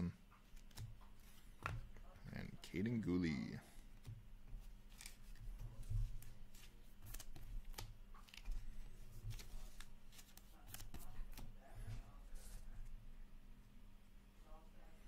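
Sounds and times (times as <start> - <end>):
cards sliding and flicking: 0.5 - 1.7, 4.9 - 5.4, 6.5 - 8.7, 9.3 - 11.4.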